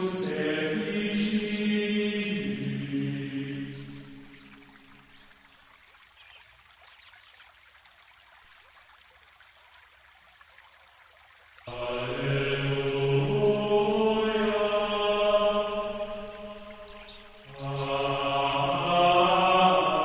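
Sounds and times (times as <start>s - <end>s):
faint hiss: 0.0s - 5.6s, 11.6s - 20.0s.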